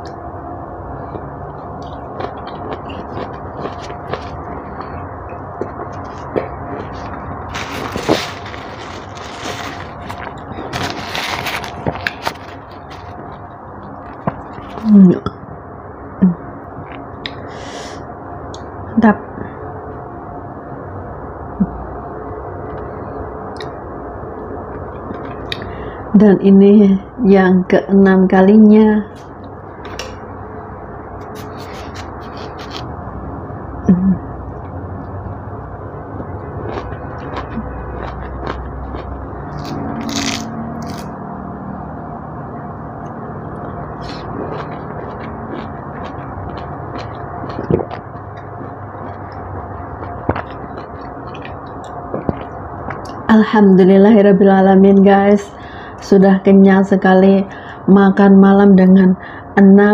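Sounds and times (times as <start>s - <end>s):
paper tissue rustling and crumpling: 6.8s - 13.4s
orange being handled and eaten: 31.2s - 32.9s
person humming: 33.9s - 34.3s.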